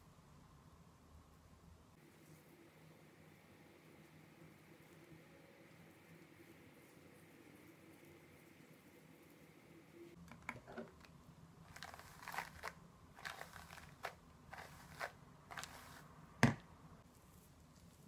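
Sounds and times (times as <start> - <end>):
hair rustling and crinkling: 10.9 - 18.0.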